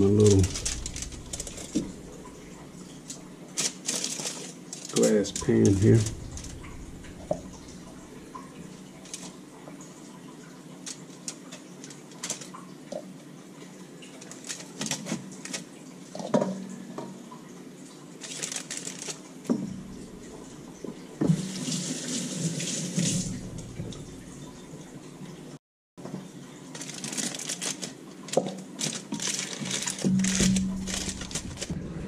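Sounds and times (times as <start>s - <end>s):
foil crinkling and tapping: 0.0s - 8.0s, 8.9s - 9.4s, 10.8s - 13.1s, 14.1s - 16.4s, 18.2s - 24.1s, 26.1s - 31.8s
tap running into sink: 19.4s - 24.6s.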